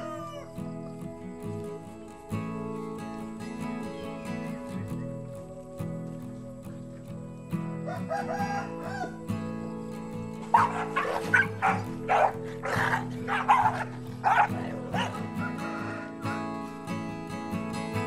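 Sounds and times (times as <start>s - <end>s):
background music: 0.0s - 18.0s
dogs snarling and barking: 10.4s - 16.5s.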